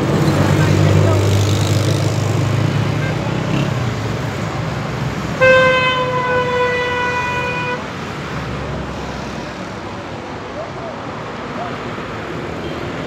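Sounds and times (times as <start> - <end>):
vehicle horn long note: 5.4 - 7.9.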